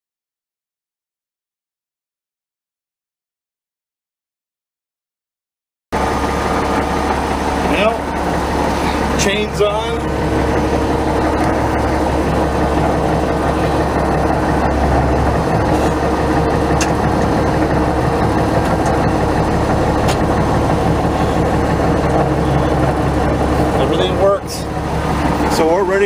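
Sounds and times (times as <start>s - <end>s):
diesel tractor engine running: 6.0s - 26.0s.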